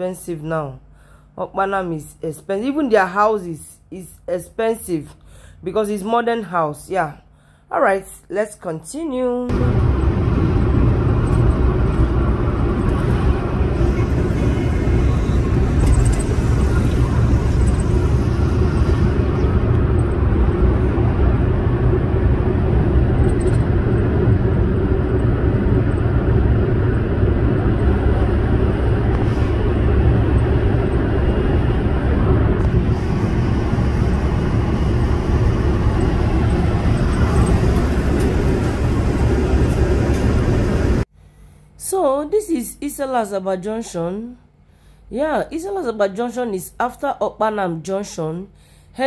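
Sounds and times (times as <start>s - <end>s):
car interior rumble: 9.5s - 41.0s.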